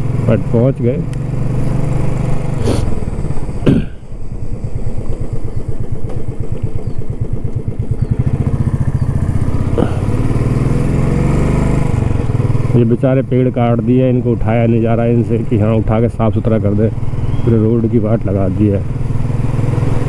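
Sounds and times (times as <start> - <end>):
motorcycle engine thumping: 1.1 - 10.8.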